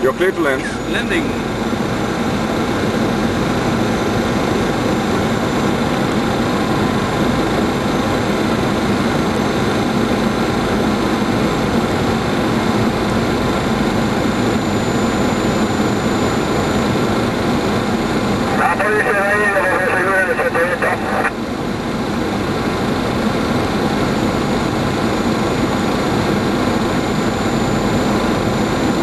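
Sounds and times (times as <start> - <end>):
rush of airflow and engine noise: 0.0 - 29.0
faint high whines: 17.6 - 21.4.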